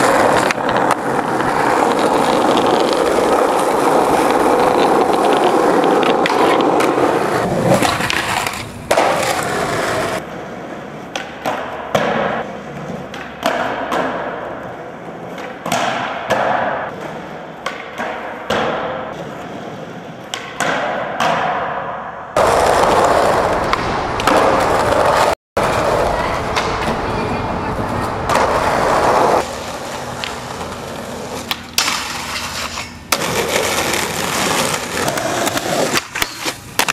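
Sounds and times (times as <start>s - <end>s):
skateboard landings clacking: 0.0s - 19.4s, 20.2s - 36.9s
skateboard wheels rolling: 0.0s - 36.9s
skateboard tail pops: 2.0s - 10.2s, 15.4s - 16.9s, 22.4s - 25.3s.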